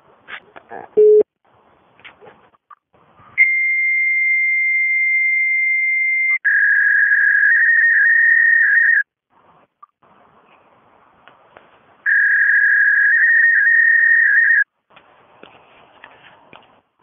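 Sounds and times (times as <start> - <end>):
high fax answer tone: 12.1 - 14.6.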